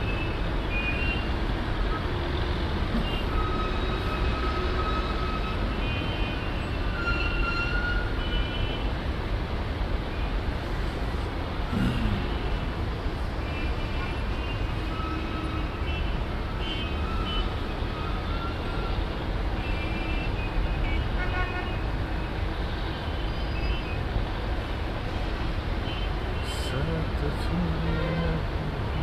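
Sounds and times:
distant traffic rumble: 0:24.0 - 0:29.0.

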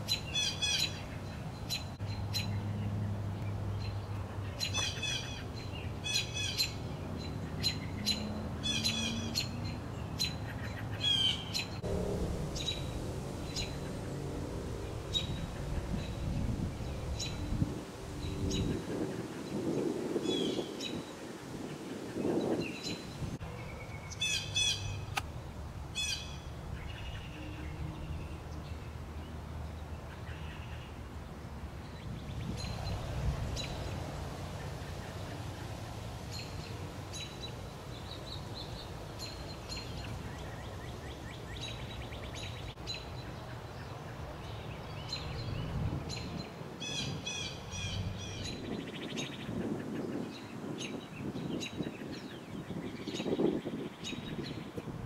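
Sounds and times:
birds chirping: 0:00.0 - 0:25.3, 0:26.0 - 0:54.9
low background rumble: 0:11.8 - 0:18.8.

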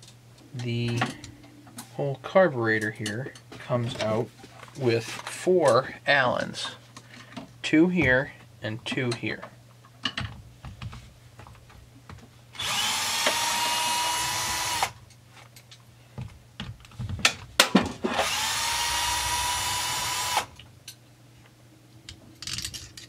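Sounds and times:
light clicks of metal parts: 0:02.7 - 0:05.9, 0:15.0 - 0:15.9, 0:20.8 - 0:23.0
power drill motor whine: 0:12.6 - 0:15.0, 0:18.1 - 0:20.5.

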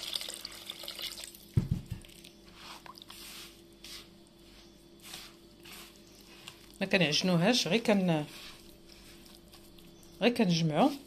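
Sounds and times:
water poured into a bowl: 0:00.0 - 0:01.4
dull knock: 0:01.6 - 0:02.0
hand kneading wet dough: 0:02.1 - 0:11.0.

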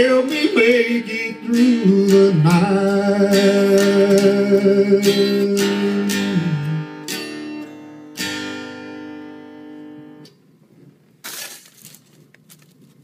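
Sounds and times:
person singing: 0:00.0 - 0:07.1
acoustic guitar strumming chords: 0:00.0 - 0:10.3
rustle and light clicks: 0:11.3 - 0:13.0.

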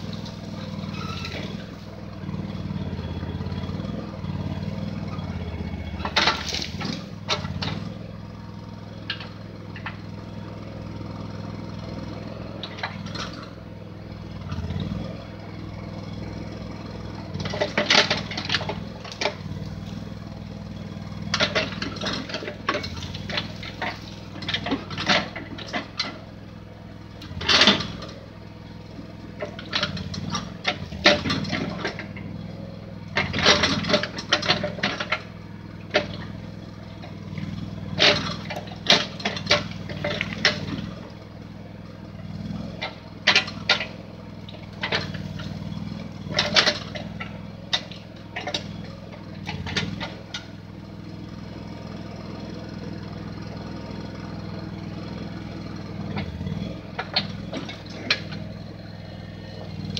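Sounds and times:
backhoe engine running: 0:00.0 - 0:59.9
branches snapping and cracking: 0:06.1 - 0:07.9.

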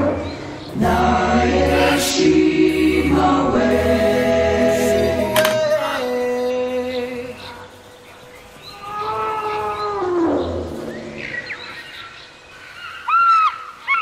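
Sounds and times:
music: 0:00.7 - 0:06.9.

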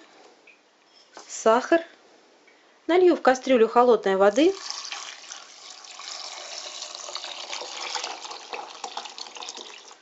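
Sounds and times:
water pouring into a pot: 0:04.6 - 0:10.0.

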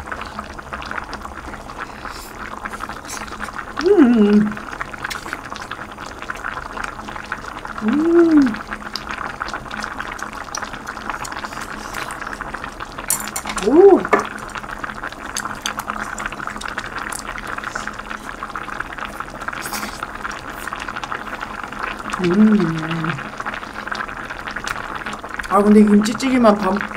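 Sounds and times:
stew bubbling in a pot: 0:00.0 - 0:26.9
person humming: 0:03.1 - 0:04.6, 0:07.8 - 0:08.6, 0:13.6 - 0:14.3, 0:22.1 - 0:23.4.

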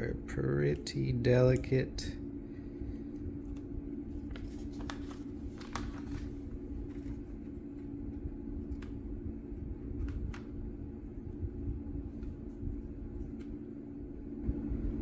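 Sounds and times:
low hum with rumble: 0:00.0 - 0:15.0
paper sticker backing crinkling: 0:03.0 - 0:09.1, 0:09.9 - 0:10.6.

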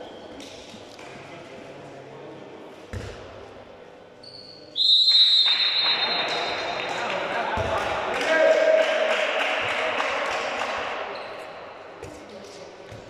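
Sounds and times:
ball bouncing on court floor: 0:02.9 - 0:03.4, 0:07.4 - 0:08.2, 0:12.0 - 0:12.3
referee's whistle long blast: 0:04.8 - 0:06.2.

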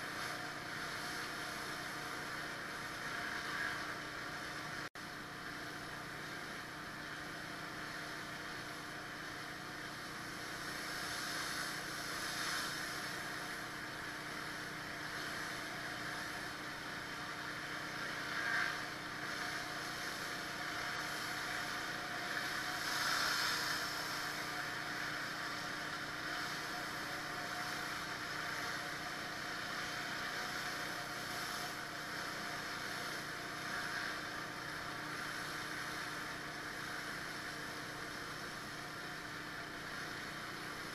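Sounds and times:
water spray hissing on concrete: 0:10.4 - 0:16.5, 0:18.6 - 0:37.6.

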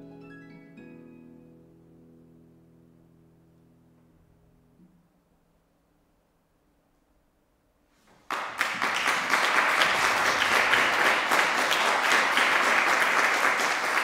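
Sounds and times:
audience applause: 0:08.2 - 0:14.0.

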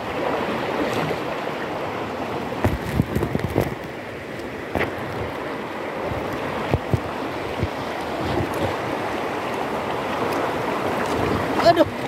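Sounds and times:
river water rushing: 0:00.0 - 0:12.0
wind on microphone: 0:02.5 - 0:04.0, 0:04.6 - 0:12.0.

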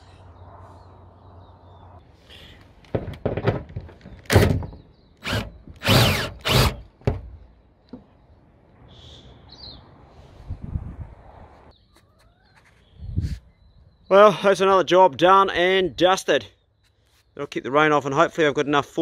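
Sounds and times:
bird chirping: 0:00.0 - 0:02.5, 0:04.0 - 0:10.0, 0:11.7 - 0:14.8, 0:16.4 - 0:18.8.

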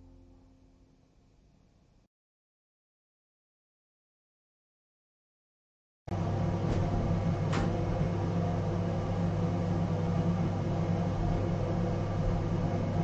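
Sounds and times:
ventilation fan humming: 0:06.1 - 0:13.0.

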